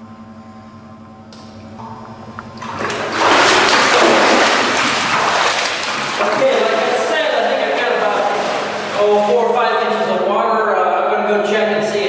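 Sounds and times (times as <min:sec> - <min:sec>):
electric pump humming: 0:00.0 - 0:12.0
water rushing: 0:02.6 - 0:10.3.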